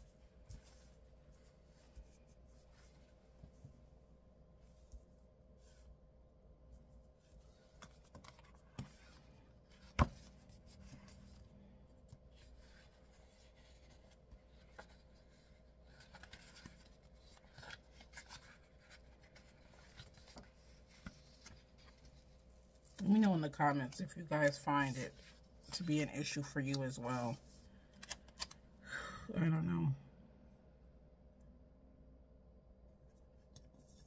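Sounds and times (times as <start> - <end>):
faint steady hum: 0.0 - 34.0
paper rubbing and rustling: 12.2 - 23.2.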